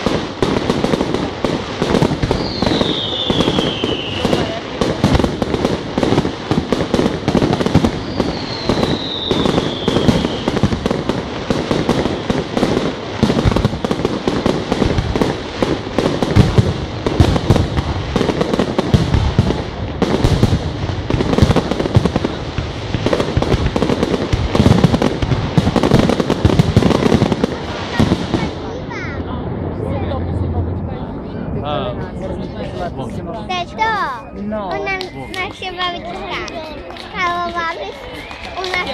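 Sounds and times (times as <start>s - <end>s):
fireworks bangs and crackles: 0.0s - 38.9s
firework falling whistle: 2.2s - 4.4s, 7.8s - 10.8s.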